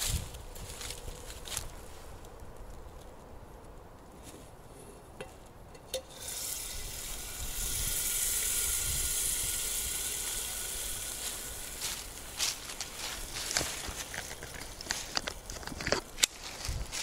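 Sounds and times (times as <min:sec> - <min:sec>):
loud steady hiss: 0:05.9 - 0:15.5.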